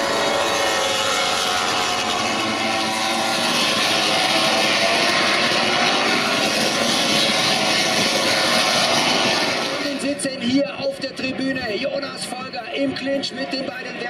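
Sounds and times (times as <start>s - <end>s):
race bikes engines screaming: 0.0s - 10.3s.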